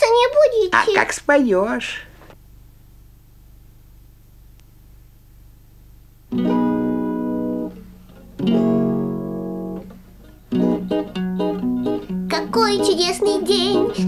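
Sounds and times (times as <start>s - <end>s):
acoustic guitar chords strummed: 6.3s - 14.0s
plucked guitar notes: 6.3s - 14.0s.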